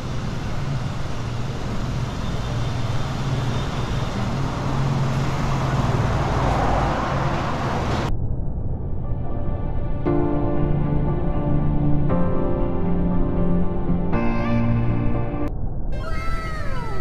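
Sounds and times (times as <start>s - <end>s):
street traffic: 0.0s - 8.1s.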